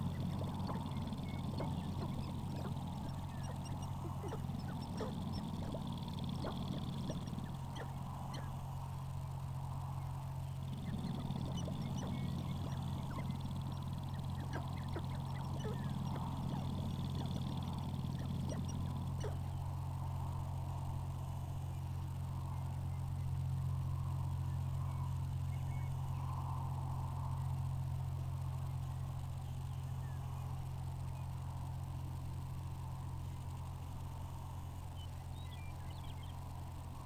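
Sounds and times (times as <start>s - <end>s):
grouse clucking and calling: 0.0s - 8.7s, 10.6s - 19.5s
steady low hum: 0.0s - 37.0s.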